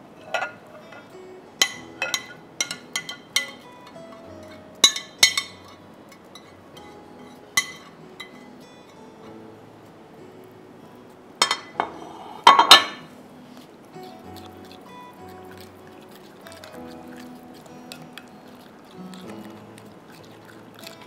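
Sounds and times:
spoon clinking on ceramic plate: 0.2 - 6.5, 7.6 - 8.4, 11.4 - 13.1.

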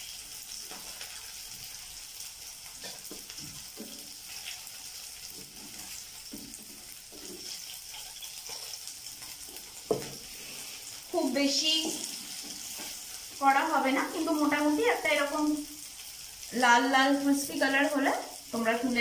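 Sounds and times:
food sizzling in hot oil: 0.0 - 19.0
wooden spatula scraping a pan: 2.8 - 11.0, 11.6 - 13.4.

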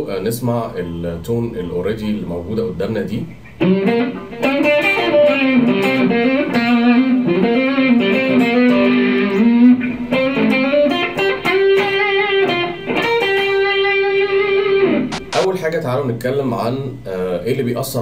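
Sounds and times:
electric guitar blues lead: 3.3 - 15.4.

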